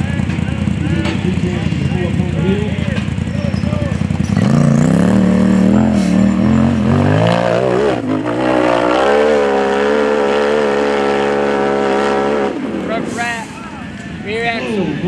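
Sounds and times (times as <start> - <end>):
buggy engine revving: 0.0 - 15.0.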